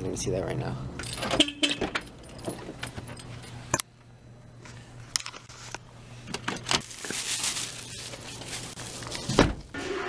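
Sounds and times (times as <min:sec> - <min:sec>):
plastic bag crinkling: 0:06.8 - 0:09.3.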